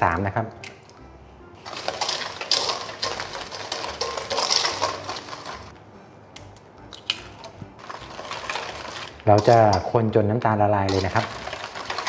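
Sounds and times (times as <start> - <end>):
wire whisk rattling in metal bowl: 1.6 - 5.7, 7.8 - 9.9, 10.9 - 12.0.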